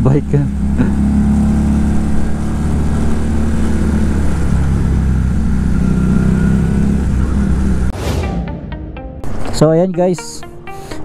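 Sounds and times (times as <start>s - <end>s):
motorcycle engine running steadily: 0.0s - 7.9s.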